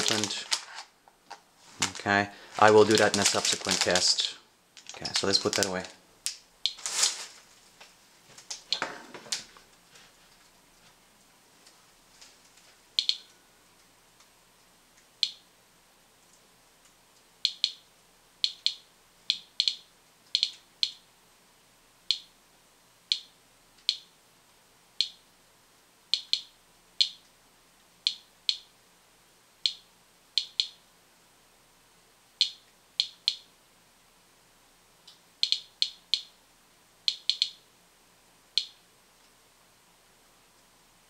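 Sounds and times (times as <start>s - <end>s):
geiger counter chirping: 13.0s - 13.4s, 15.2s - 15.5s, 17.4s - 21.0s, 22.1s - 22.3s, 23.1s - 24.2s, 25.0s - 25.2s, 26.1s - 27.2s, 28.1s - 28.7s, 29.6s - 30.8s, 32.4s - 33.5s, 35.4s - 36.4s, 37.0s - 37.7s.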